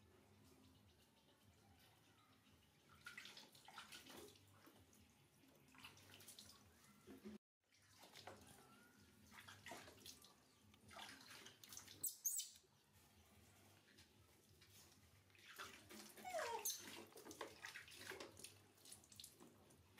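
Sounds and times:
water splashing in a tub: 2.8s - 12.1s, 14.6s - 19.9s.

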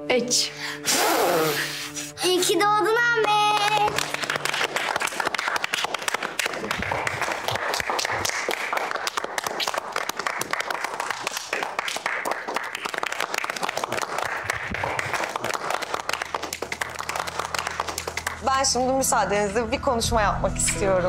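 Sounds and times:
people applauding: 3.0s - 18.8s.

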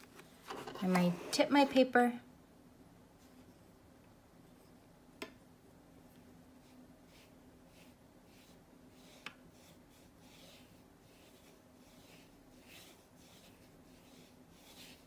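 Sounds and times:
wet brush swishing on paper: 6.5s - 15.0s.

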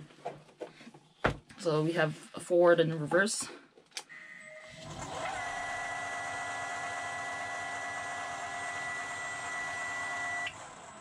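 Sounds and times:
electric motor whine: 4.6s - 11.0s.

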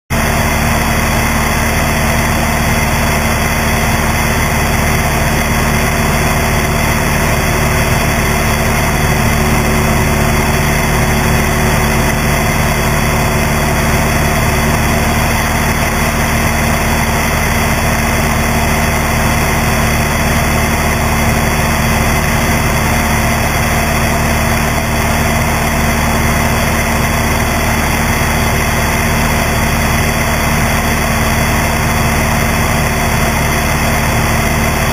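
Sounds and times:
propeller plane engine droning: 0.1s - 34.9s.

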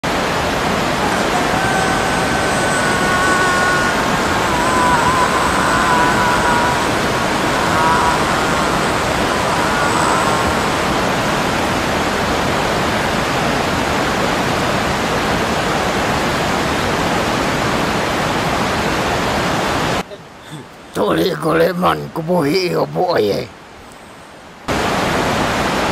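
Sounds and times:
waterfall rushing: 0.0s - 23.7s, 24.7s - 25.9s
faint high tones: 0.9s - 11.7s.

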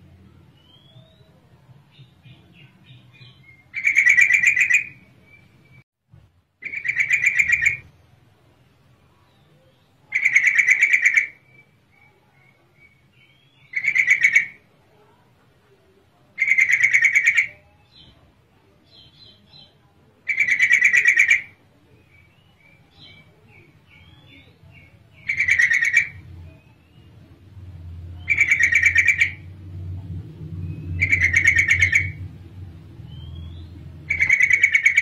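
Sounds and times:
soft bird chirps: 0.2s - 5.8s, 6.6s - 8.2s, 8.8s - 35.0s
bird fast chattering calls: 3.2s - 5.0s, 6.6s - 7.9s, 10.1s - 11.7s, 12.8s - 14.6s, 16.4s - 17.6s, 20.3s - 21.6s, 23.0s - 26.6s, 28.2s - 29.5s, 30.7s - 32.3s, 33.2s - 35.0s.

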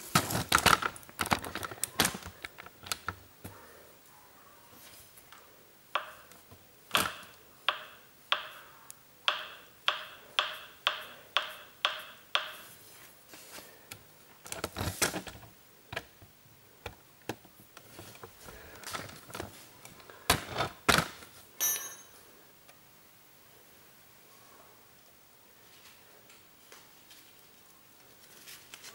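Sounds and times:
sharp metallic clicks: 9.3s - 12.6s.

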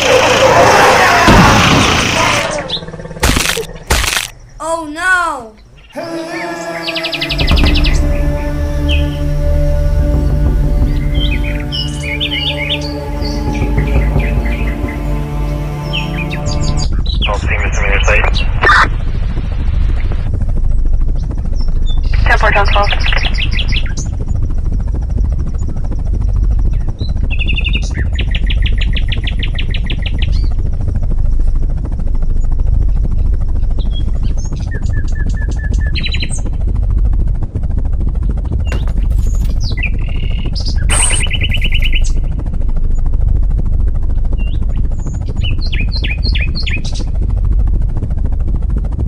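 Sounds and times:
steady low rumble: 6.6s - 49.0s
small birds chirping: 38.7s - 42.2s
bird trills: 39.2s - 42.2s.

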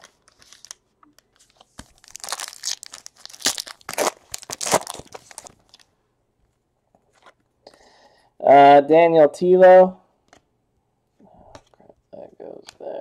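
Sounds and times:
plastic wrapper crinkling and tearing: 0.0s - 5.9s.

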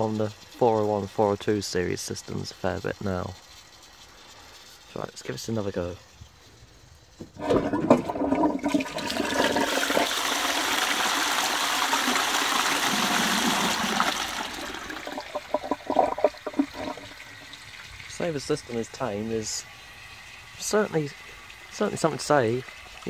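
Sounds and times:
water gurgling and splashing: 7.4s - 18.3s
water rushing into toilet pan: 7.4s - 18.3s.

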